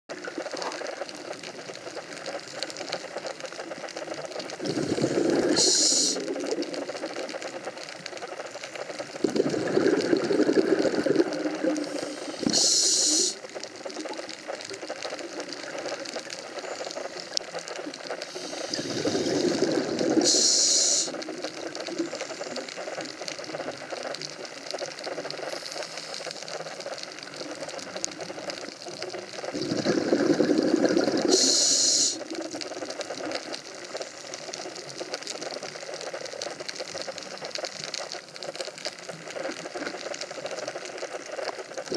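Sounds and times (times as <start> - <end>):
underwater hiss: 4.4 - 7.5, 8.8 - 17.4, 18.1 - 23.6, 25.1 - 26.7, 27.4 - 35.6.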